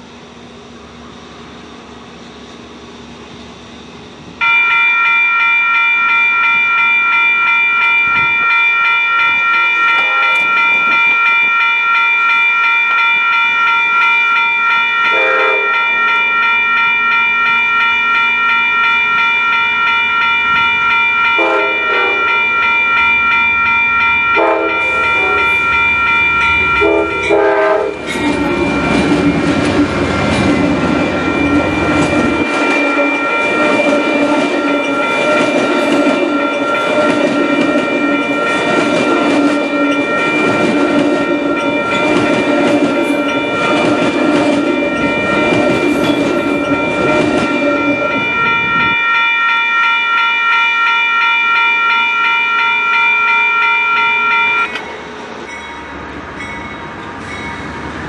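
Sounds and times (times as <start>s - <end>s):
train wheels rumbling on rails: 0.0s - 58.0s
locomotive air horn: 9.5s - 10.6s, 15.1s - 15.9s, 21.3s - 22.5s, 24.4s - 25.7s, 26.6s - 28.6s, 32.4s - 33.5s.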